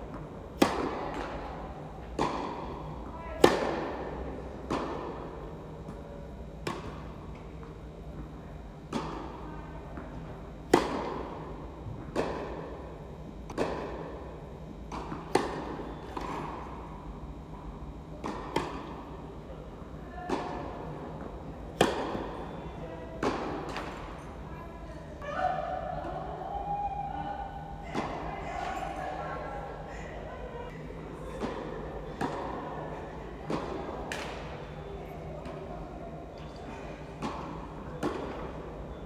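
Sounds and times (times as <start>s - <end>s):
tennis ball bouncing on court: 0.1s - 1.4s, 8.9s - 9.4s, 14.9s - 16.6s, 18.2s - 19.0s, 20.3s - 22.5s
tennis ball struck by rackets: 0.1s - 1.4s, 2.1s - 2.7s, 3.4s - 4.1s, 8.9s - 9.3s, 10.7s - 11.3s, 13.5s - 14.1s, 14.9s - 16.6s, 18.2s - 18.9s, 20.3s - 20.7s, 21.8s - 22.5s.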